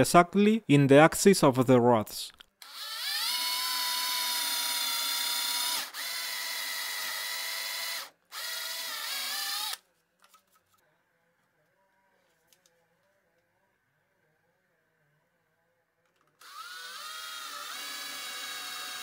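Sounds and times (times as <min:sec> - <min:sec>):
cordless drill boring into wood: 0:02.6 - 0:09.8, 0:16.4 - 0:19.0.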